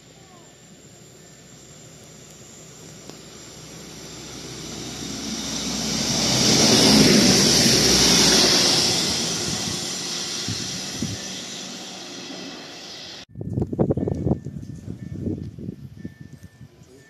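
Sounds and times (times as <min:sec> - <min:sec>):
passenger train passing: 0:00.0 - 0:13.3.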